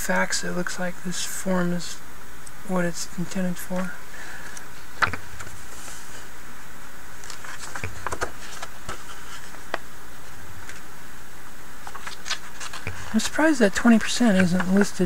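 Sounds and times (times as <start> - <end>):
background hiss: 0.0 - 15.0
paper pages turning: 7.2 - 9.8, 11.8 - 15.0.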